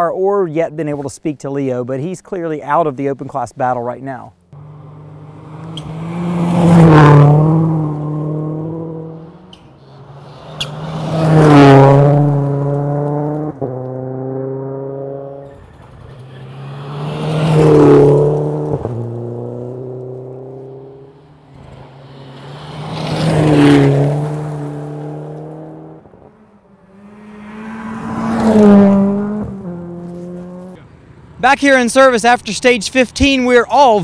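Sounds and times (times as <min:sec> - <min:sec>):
rally car engine passing: 0:04.5 - 0:31.4.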